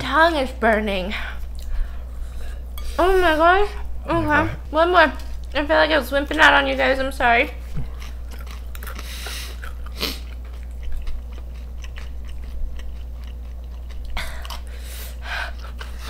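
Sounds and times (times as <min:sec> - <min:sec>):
chewing crunchy chips: 0:07.7 - 0:14.8.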